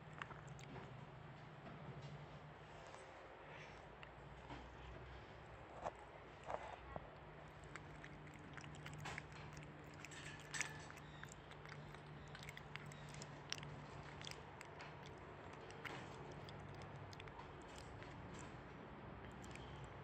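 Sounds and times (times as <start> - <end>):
gibbon chewing and mouth clicks: 0.0 - 0.9, 7.2 - 20.0
low steady hum: 0.0 - 20.0.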